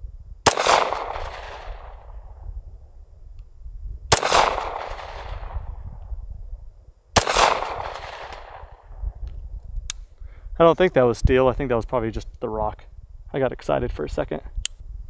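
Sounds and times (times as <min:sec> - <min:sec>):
pistol shots: 0:00.5 - 0:02.2, 0:04.1 - 0:05.7, 0:07.2 - 0:08.9
gunshot echo rolling: 0:00.5 - 0:02.4, 0:04.1 - 0:06.0, 0:07.2 - 0:09.1.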